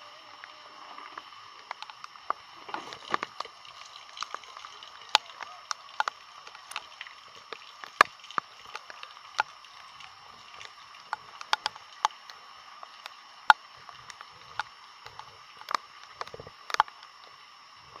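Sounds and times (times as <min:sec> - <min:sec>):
steady high hiss: 0:00.0 - 0:18.0
footsteps wading through water: 0:01.7 - 0:12.2.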